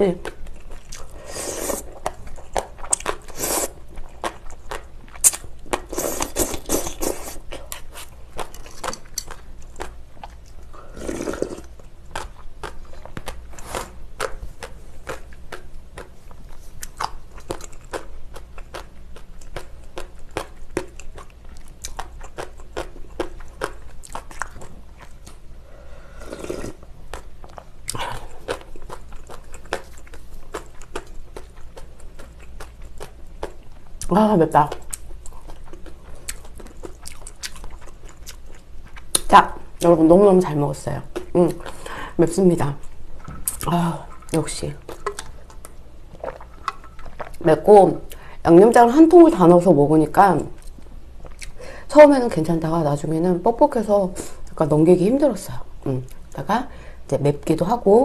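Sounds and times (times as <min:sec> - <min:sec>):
noodle slurping: 0:10.8 - 0:11.7, 0:26.1 - 0:26.8.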